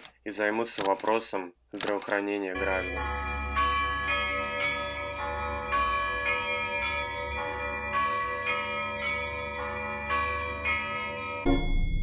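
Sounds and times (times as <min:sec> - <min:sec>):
bell-like tones melody: 0:02.6 - 0:12.0.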